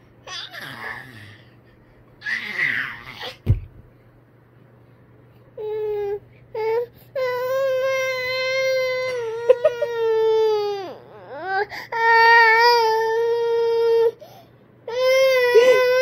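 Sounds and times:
baby crying: 0.3s - 1.4s, 2.2s - 3.4s, 5.6s - 14.2s, 14.9s - 16.0s.

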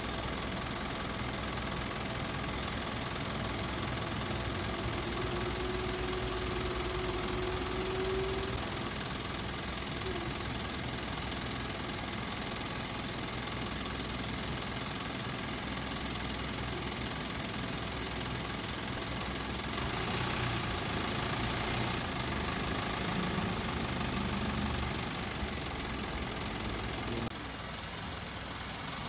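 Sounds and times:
truck engine idling: 0.0s - 29.0s.

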